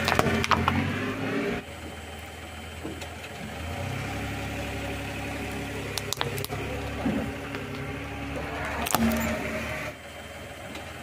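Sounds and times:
car engine idling: 0.0s - 11.0s
plastic toy cracking under tyre: 5.9s - 6.6s.

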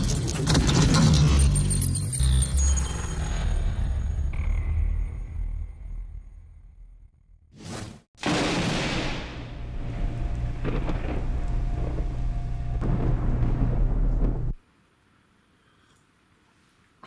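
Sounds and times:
crackles: 8.2s - 17.0s
thunder-like boom and rumble: 10.6s - 14.6s.

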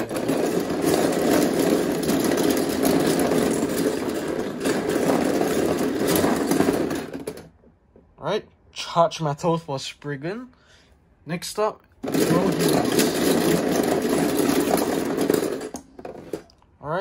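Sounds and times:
small plastic parts clattering: 0.0s - 7.6s, 12.0s - 16.6s.

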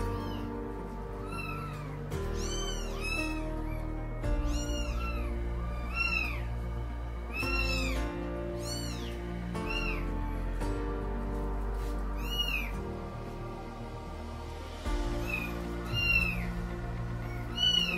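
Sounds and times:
cats meowing: 0.0s - 10.6s, 11.8s - 13.0s, 15.2s - 16.6s, 17.2s - 17.9s
background music with sustained chords: 0.0s - 17.9s.

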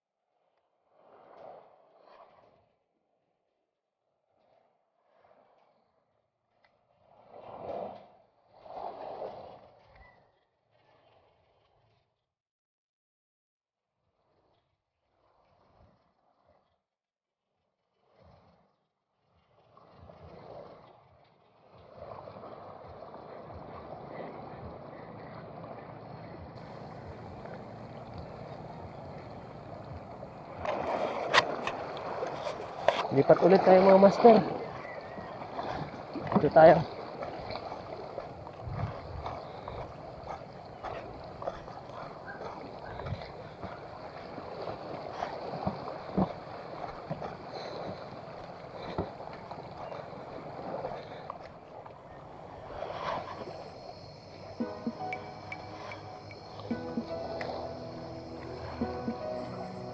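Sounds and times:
shallow water washing ashore: 0.9s - 2.8s, 6.9s - 12.0s, 17.9s - 59.9s
wind on microphone: 22.0s - 51.2s.

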